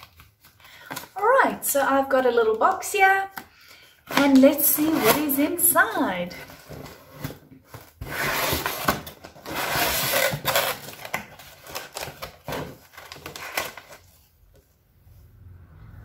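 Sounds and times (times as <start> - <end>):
packaging paper rustling: 2.8 - 14.4.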